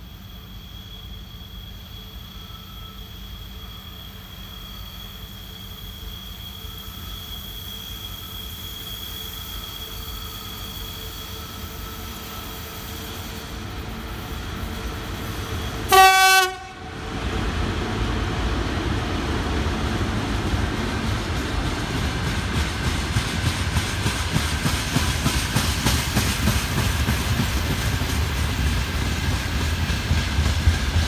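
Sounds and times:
electric locomotive rumbling: 0:00.0 - 0:31.0
locomotive horn blast: 0:15.8 - 0:16.9.

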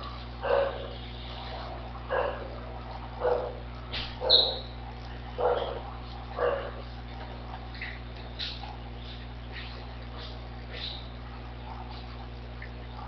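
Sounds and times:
steady low hum: 0:00.0 - 0:13.0
dog barking: 0:00.4 - 0:04.7, 0:05.4 - 0:06.9, 0:11.2 - 0:12.2.

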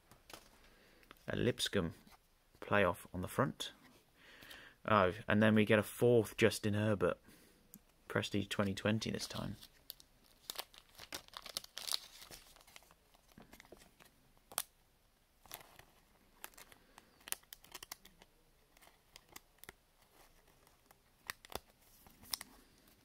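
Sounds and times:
cards rustling and sliding: 0:00.2 - 0:01.2, 0:09.1 - 0:14.6, 0:15.4 - 0:23.0.

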